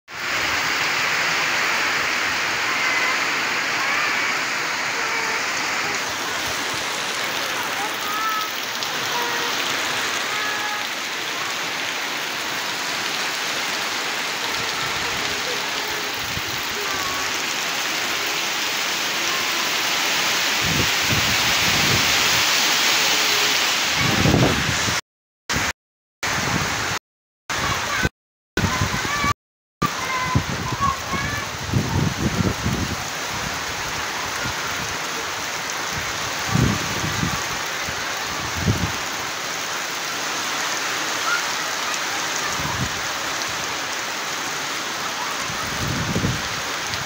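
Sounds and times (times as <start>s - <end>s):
heavy rain falling: 0.1s - 25.7s, 26.3s - 47.0s.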